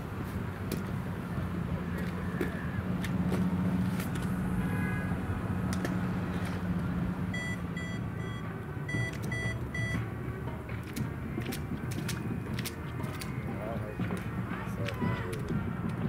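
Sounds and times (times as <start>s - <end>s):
short high electronic beeps: 7.4s - 10.0s.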